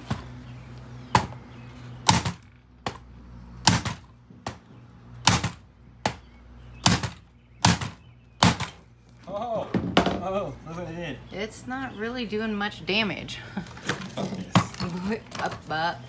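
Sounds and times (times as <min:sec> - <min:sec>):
hammer striking hard plastic: 0:05.2 - 0:08.8.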